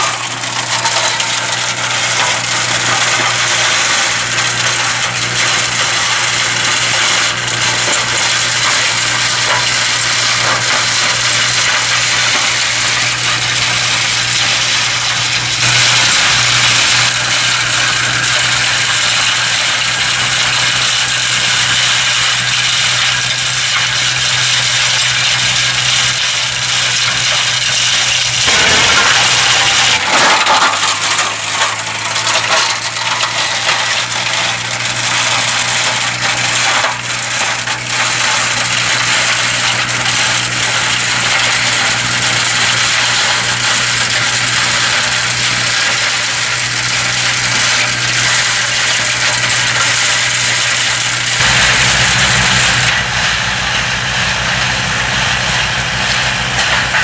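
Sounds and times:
tractor engine drone: 0.0 - 57.0
flails hitting wood: 27.2 - 51.8.

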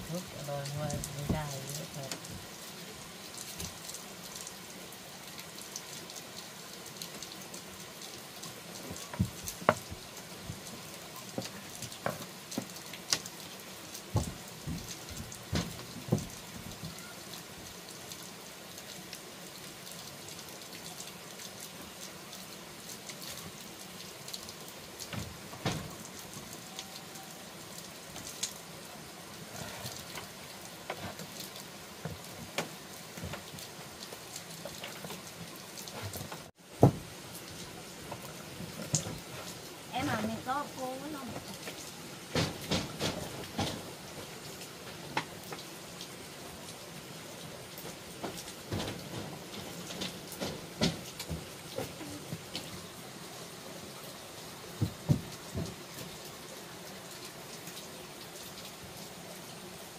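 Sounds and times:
steady water noise: 0.0 - 59.9
sharp knocks and clatters: 42.3 - 44.0, 48.2 - 52.0.

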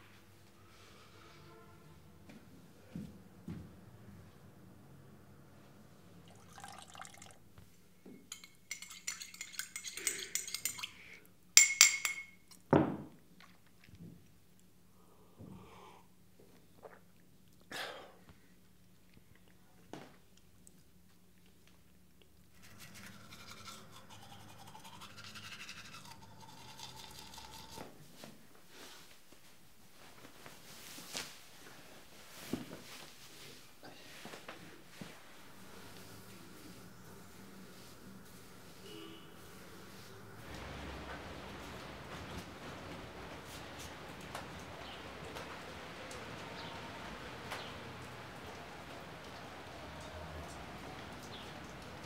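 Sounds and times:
cup clinking: 8.1 - 11.0, 11.6 - 12.6
teeth being brushed: 8.7 - 11.1, 22.5 - 27.9
water running at sink: 39.6 - 52.0.

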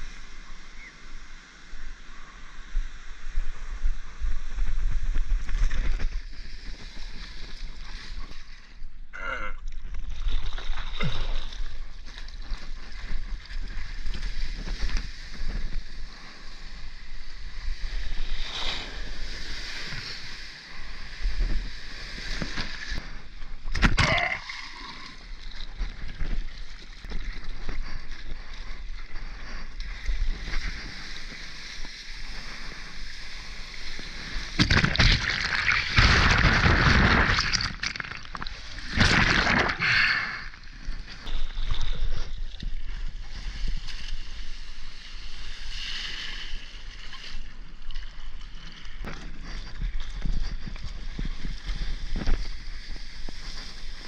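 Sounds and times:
seawater sloshing and splashing: 9.9 - 16.3, 24.4 - 54.0.

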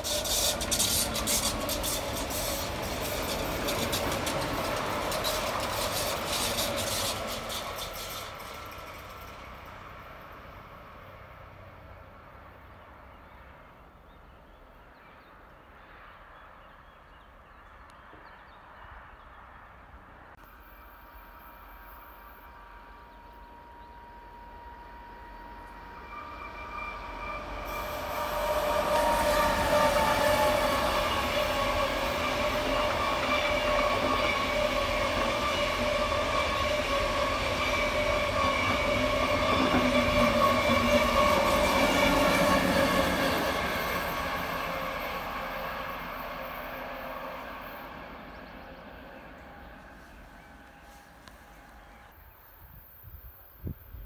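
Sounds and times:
wheels ringing on curved track: 0.0 - 9.8, 20.4 - 48.8
train rolling noise: 0.0 - 14.0, 17.7 - 54.0.

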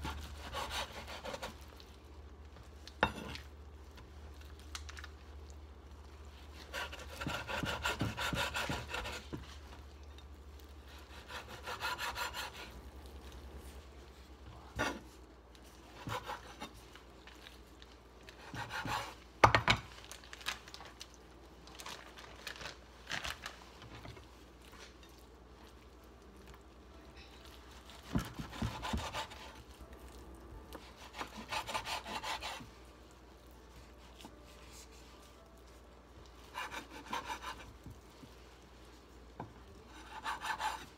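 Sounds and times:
knife sawing through meat: 0.0 - 1.6, 6.6 - 9.3, 10.9 - 12.7, 28.5 - 29.6, 30.8 - 32.6, 36.5 - 37.7, 39.9 - 40.9.

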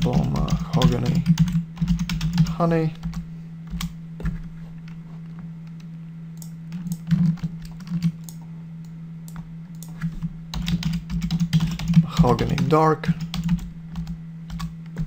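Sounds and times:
low hum: 0.0 - 15.0
keyboard and mouse clicks: 5.7 - 15.0.

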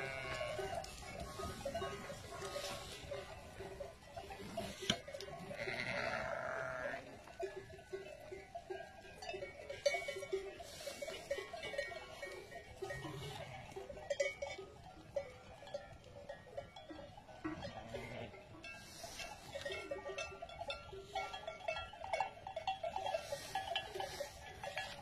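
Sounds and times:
sheep bleating: 0.0 - 1.6, 5.3 - 7.3
sheep bells clinking: 0.0 - 25.0.

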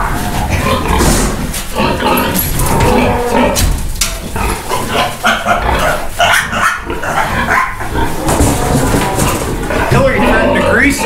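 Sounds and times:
piglets squealing: 1.8 - 3.6, 4.4 - 11.0.

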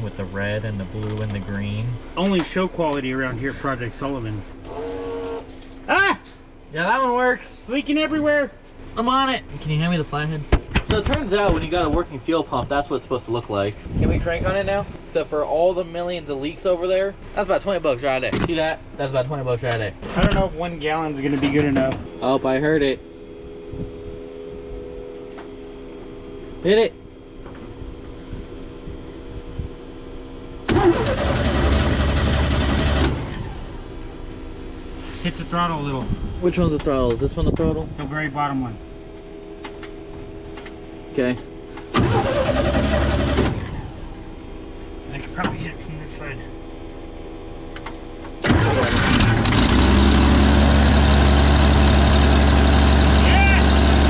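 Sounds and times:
truck engine cranking: 30.6 - 33.7, 41.8 - 44.2, 47.8 - 54.0.

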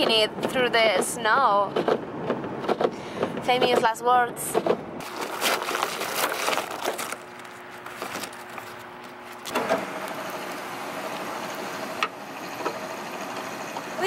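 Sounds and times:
ice and snow crunching: 5.0 - 11.3.

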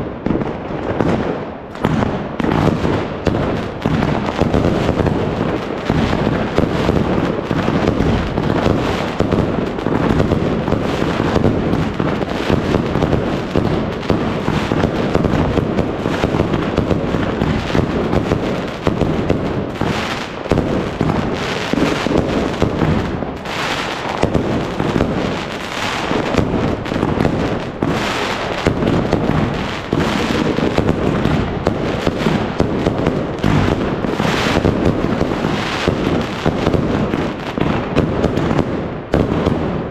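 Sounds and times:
fireworks bangs and crackling: 0.0 - 39.9
sharp firecracker cracks: 0.0 - 39.9.

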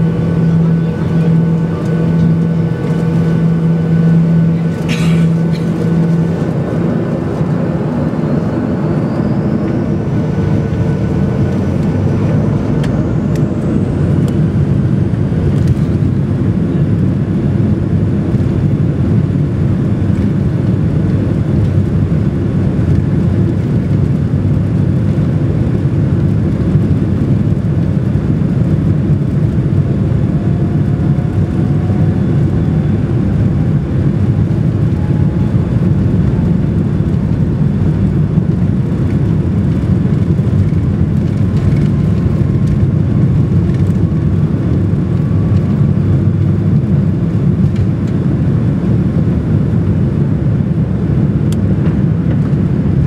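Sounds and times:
faint rising whine: 0.0 - 16.6, 28.6 - 48.6
jet engines at take-off thrust: 0.0 - 53.0
wheels rumbling on runway: 0.0 - 53.0.

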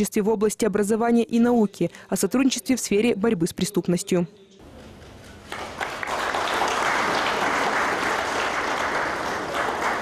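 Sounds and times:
crowd applauding: 4.6 - 10.0.

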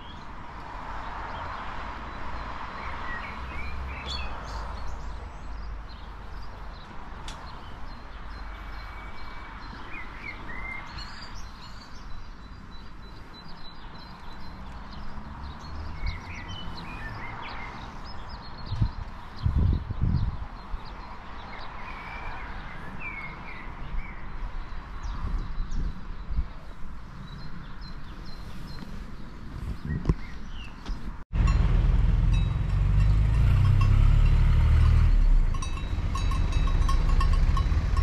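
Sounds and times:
small birds chirping: 0.0 - 0.4, 1.0 - 31.2
loud low rumbles: 31.3 - 38.0.

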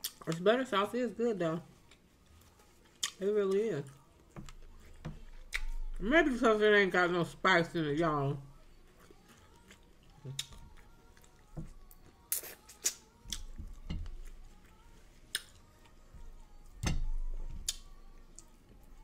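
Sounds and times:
mouth smacking and chewing: 8.8 - 13.6.

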